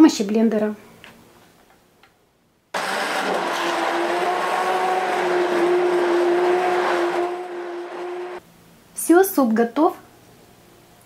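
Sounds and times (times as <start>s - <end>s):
blade churning puree: 2.8s - 8.4s
immersion blender motor hum: 2.8s - 8.4s.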